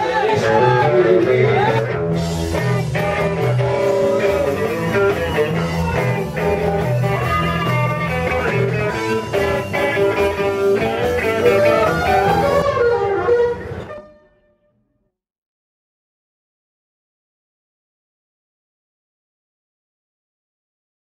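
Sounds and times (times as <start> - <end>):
drums: 0.0 - 14.2
bass: 0.0 - 14.4
electric guitar: 0.0 - 14.6.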